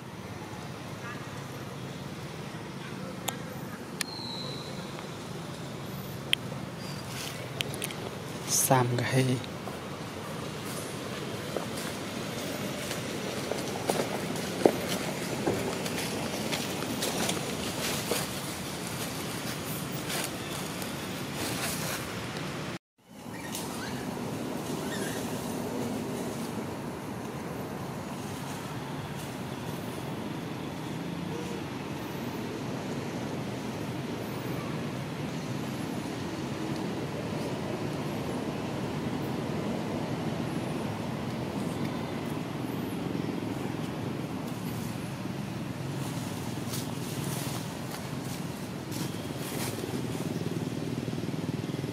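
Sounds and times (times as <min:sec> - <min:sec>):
outdoor background noise: 0:00.0 - 0:51.9
faint high chirps: 0:02.8 - 0:05.3.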